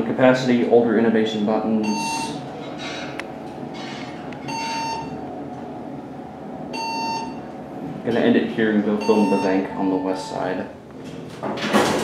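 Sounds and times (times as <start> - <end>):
elevator rumbling hum: 0.0 - 12.0
elevator electronic beep: 1.8 - 2.4, 4.4 - 5.2, 6.7 - 7.6, 9.0 - 10.6.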